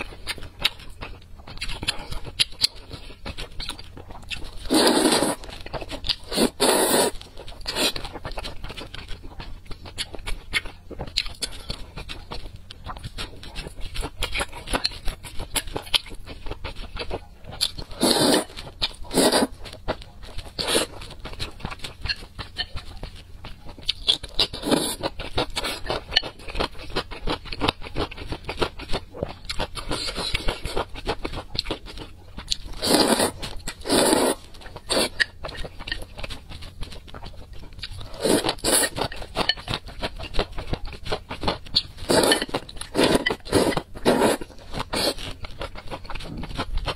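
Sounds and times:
chewing: 0.0 - 46.9
slurping noodles: 4.6 - 5.5, 6.2 - 8.0, 17.9 - 19.6, 24.5 - 25.0, 32.8 - 35.2, 38.0 - 39.0, 42.0 - 45.3.

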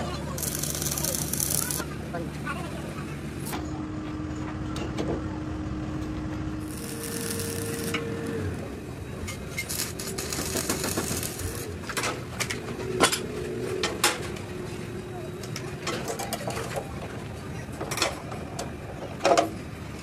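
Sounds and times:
steady hum: 0.0 - 15.6
welding arc crackling hiss: 0.3 - 1.9, 6.6 - 8.5, 9.5 - 11.8.

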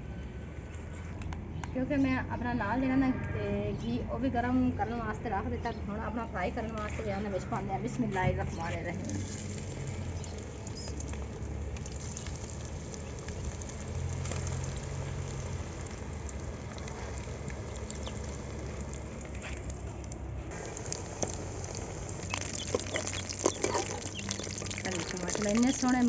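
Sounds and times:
patties sizzling in hot oil: 8.5 - 26.0.

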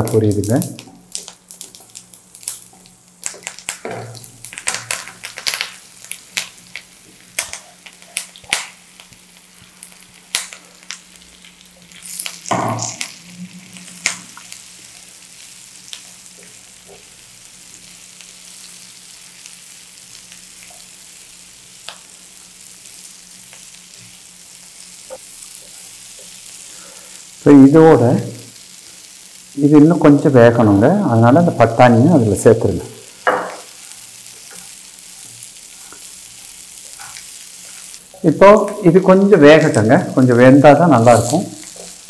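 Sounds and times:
mustard seeds popping: 0.0 - 7.6
potatoes sizzling in hot oil: 0.0 - 42.0.

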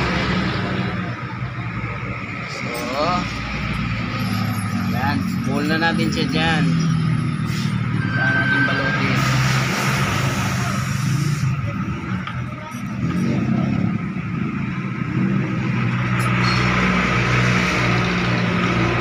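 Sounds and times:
noisy background: 0.0 - 19.0.

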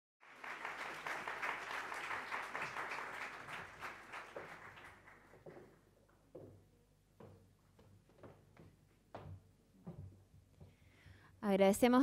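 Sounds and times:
audience applauding: 0.2 - 5.8.

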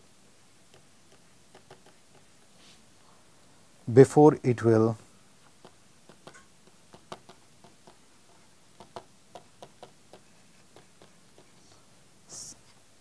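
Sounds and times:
stylus tapping on pen tablet: 0.7 - 2.3, 5.5 - 11.5.

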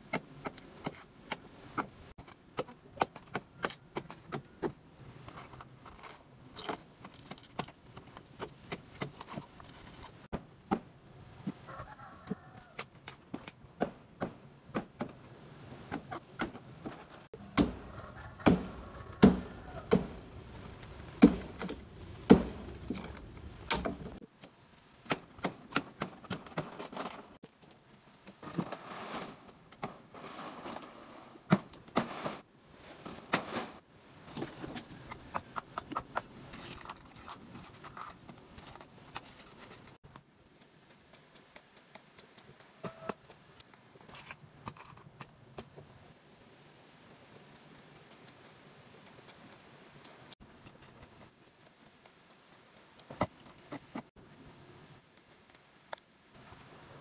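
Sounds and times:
machete chopping palm trunk: 17.5 - 17.8, 18.4 - 20.2, 21.2 - 23.0
rustling: 26.1 - 45.9.

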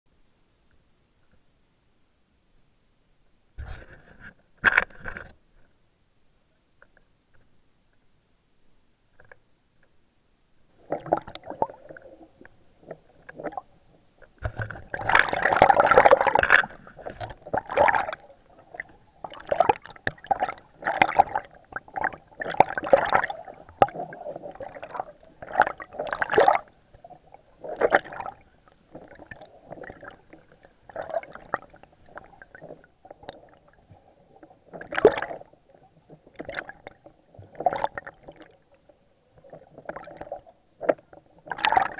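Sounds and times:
wading through shallow water: 14.4 - 41.9.

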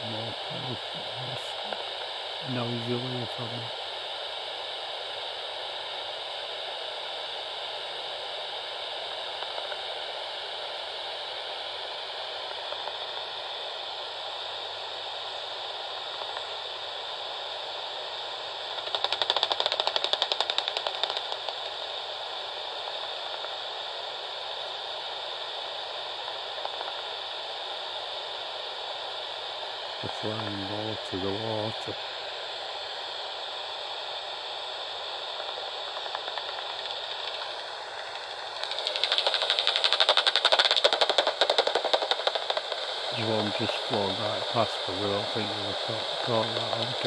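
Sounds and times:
bat detector hiss: 0.0 - 47.0
bat echolocation clicks: 18.8 - 21.7, 35.4 - 37.6, 38.6 - 42.8.

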